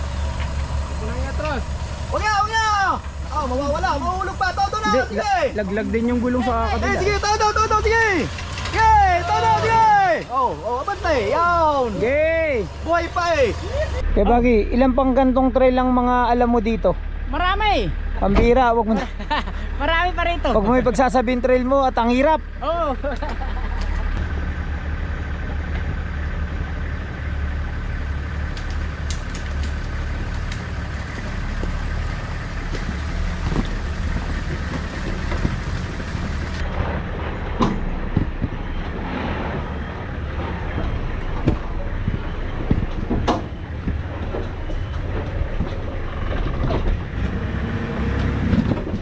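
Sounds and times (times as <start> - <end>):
off-road vehicle engine rumble: 0.0 - 49.0
vehicle knocks and clunks: 18.2 - 18.7, 25.3 - 27.1, 27.9 - 49.0.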